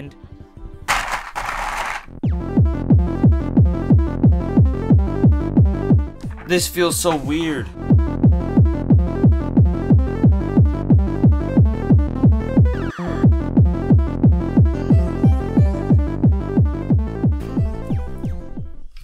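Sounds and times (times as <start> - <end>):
steady kick drum: 2.3 - 6.1, 7.8 - 12.7, 13.6 - 17.4
electronic dance music: 12.5 - 18.0.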